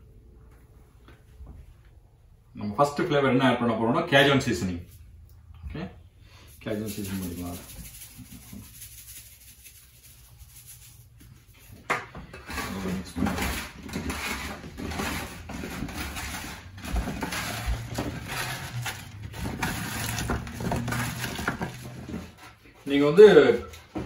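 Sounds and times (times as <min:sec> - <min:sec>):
food rustling and scraping in tray: 0:06.4 - 0:23.9.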